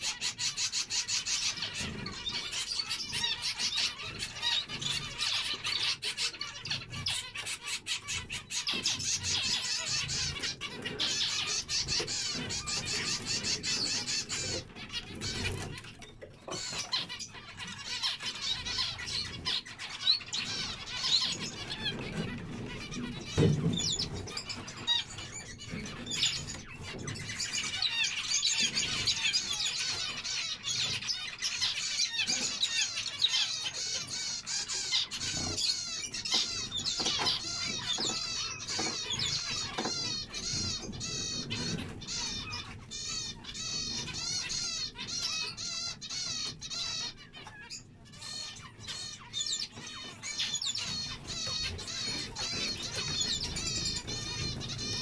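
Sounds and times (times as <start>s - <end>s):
finches chirping: 0.0s - 55.0s.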